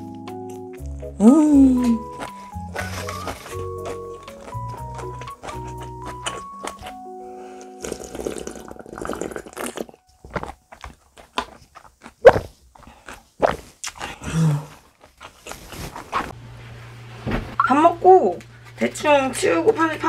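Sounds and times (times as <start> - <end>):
light background music: 0.0 - 8.8, 17.6 - 20.0
chewing: 2.1 - 7.0, 7.8 - 15.8
person slurping broth: 7.6 - 10.0.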